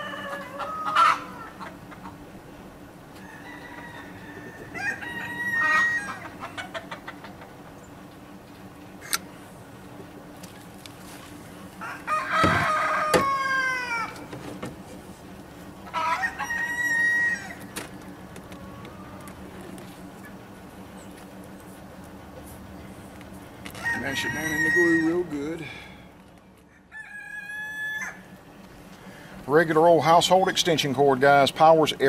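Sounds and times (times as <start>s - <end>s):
rooster crowing: 0.0s - 1.6s, 3.2s - 6.8s, 11.8s - 14.3s, 15.8s - 17.8s, 18.4s - 19.8s, 23.7s - 26.0s, 26.7s - 28.4s.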